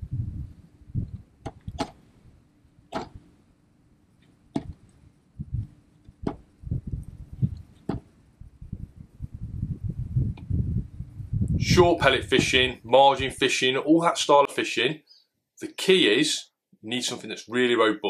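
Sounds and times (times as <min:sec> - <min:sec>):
low rumbling bumps: 0:00.0 - 0:01.9, 0:04.6 - 0:13.4.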